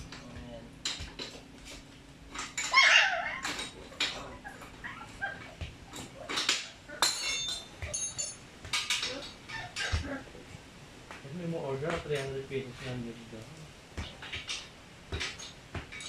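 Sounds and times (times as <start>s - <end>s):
hand tools clinking on metal: 0.0s - 10.0s.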